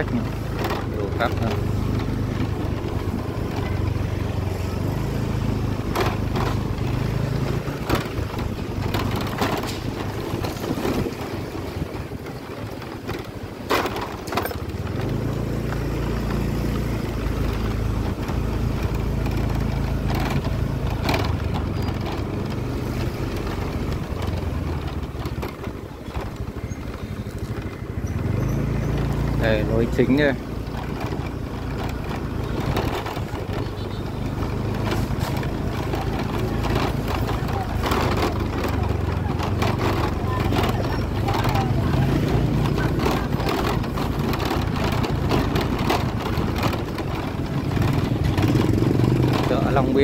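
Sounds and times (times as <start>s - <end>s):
knocks and rattles: 0.0s - 50.0s
small motorbike engine humming: 0.0s - 50.0s.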